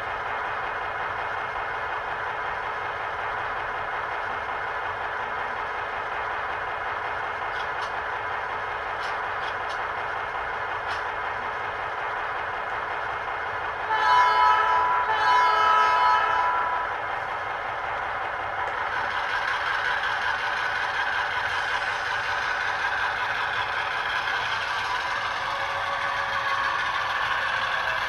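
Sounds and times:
simulated diesel engine running: 0.0s - 28.0s
model train horn blast: 13.9s - 16.8s.

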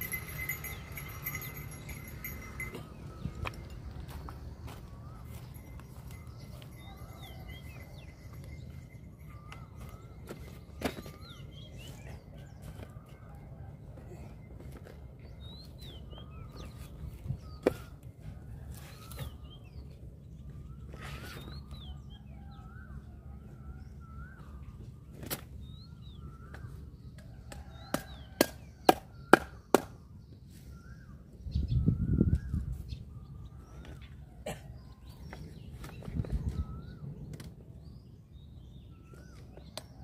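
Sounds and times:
birds chirping: 0.0s - 40.0s.

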